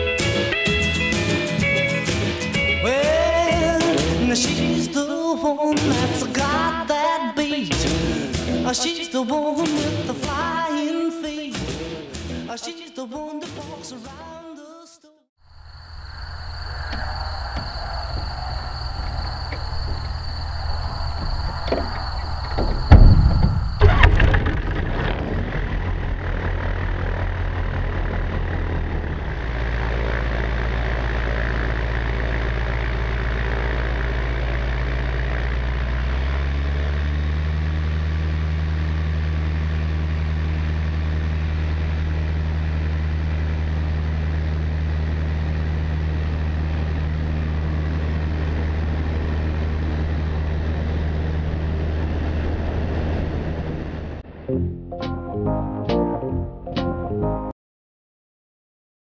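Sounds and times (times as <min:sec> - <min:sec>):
light aircraft engine and propeller: 0:25.3 - 0:54.2.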